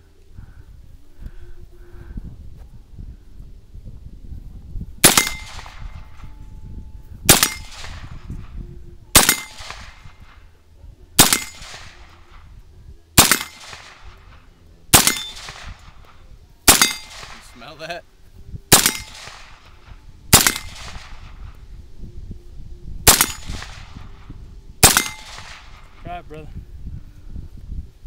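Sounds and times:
carbine gunshots: 5.0 - 6.2, 7.3 - 8.2, 9.2 - 10.4, 11.2 - 12.4, 13.2 - 17.8, 18.7 - 21.4, 23.1 - 24.0, 24.8 - 26.0.

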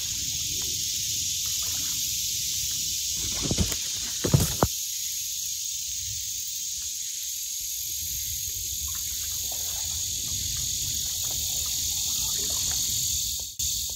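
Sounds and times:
insects buzzing: 0.0 - 13.9.

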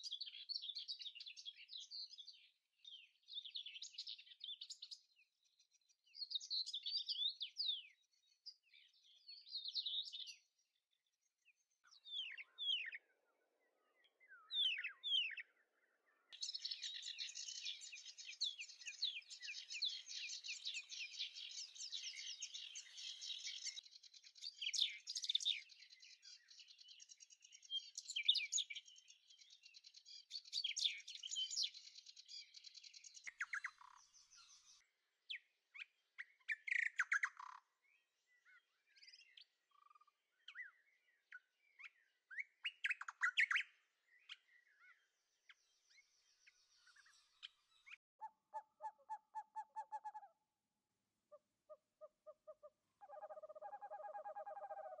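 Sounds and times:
small birds chirping: 0.0 - 50.6, 51.3 - 55.0
lower repeated bird call: 16.3 - 23.8, 51.7 - 55.0.

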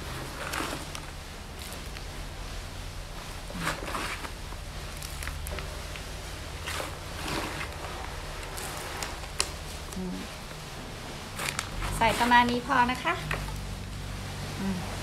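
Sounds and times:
potting mix rustling and crunching: 0.0 - 15.0.

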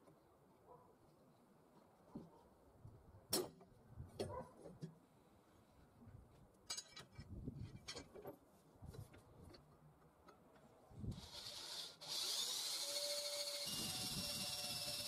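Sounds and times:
electric drill boring into steel: 11.1 - 15.0.

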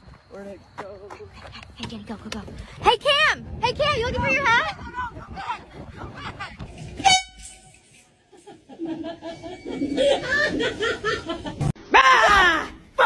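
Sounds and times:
people laughing: 5.8 - 6.8, 8.2 - 11.7
loud horn blast: 7.0 - 7.8.

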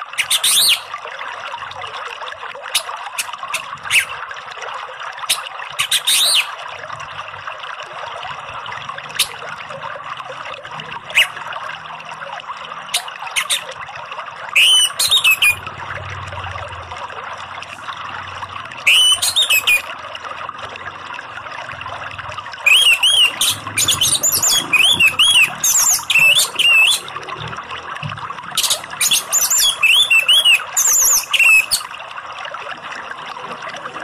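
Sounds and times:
flowing water: 0.0 - 34.0
thrush singing whistled phrases: 0.2 - 0.9, 3.5 - 4.1, 5.3 - 6.5, 11.1 - 11.4, 14.6 - 15.6, 18.8 - 19.9, 22.6 - 27.2, 28.6 - 31.9.

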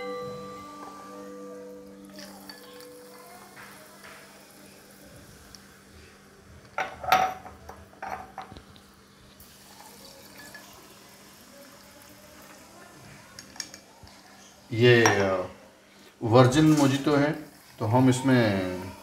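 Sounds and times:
soda pouring and splashing: 9.4 - 12.7.

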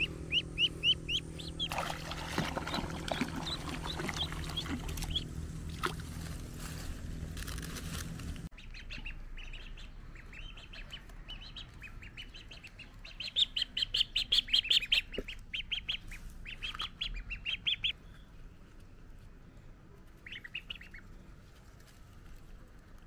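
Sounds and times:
ducklings peeping: 0.0 - 6.5, 8.5 - 18.9, 19.9 - 23.0.

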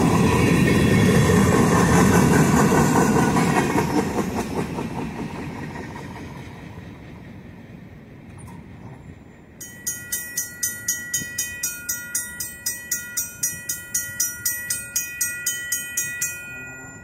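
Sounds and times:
railroad crossing bell ringing: 0.0 - 4.2, 9.5 - 17.0.

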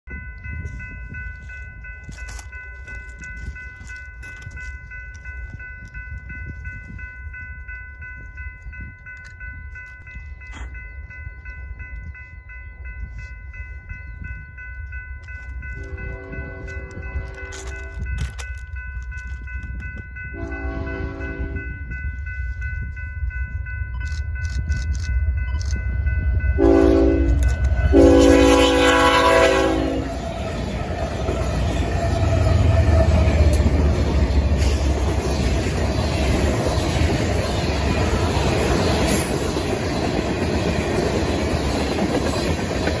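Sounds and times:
crossing bell ringing: 0.0 - 43.0
train wheels on rails: 0.1 - 43.0
locomotive horn blasts: 15.8 - 18.0, 20.4 - 21.6, 26.6 - 30.2
freight train rumbling past: 20.2 - 24.4, 25.1 - 43.0.

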